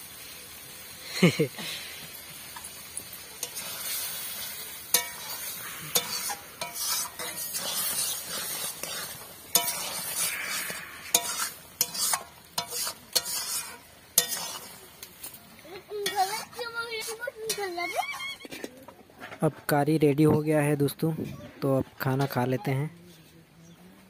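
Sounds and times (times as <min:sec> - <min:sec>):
curry sizzling: 0:00.0 - 0:18.5
metal spatula scraping pan: 0:03.4 - 0:18.0.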